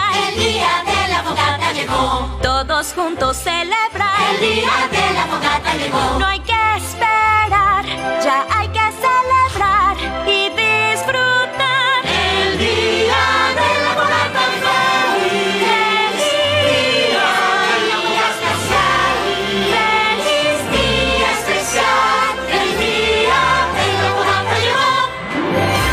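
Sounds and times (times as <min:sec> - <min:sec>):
choir singing held notes: 0:04.2 - 0:06.2, 0:12.0 - 0:25.9
orchestral backing: 0:08.9 - 0:25.9.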